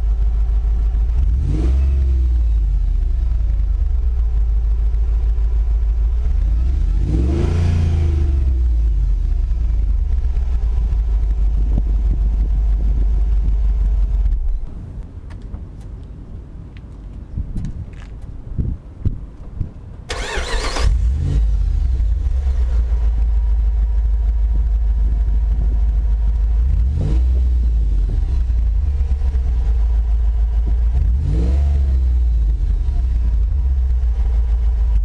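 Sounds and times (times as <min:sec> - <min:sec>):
car engine idling: 0:00.0 - 0:16.0, 0:20.1 - 0:35.0
starter motor whine: 0:20.1 - 0:21.2.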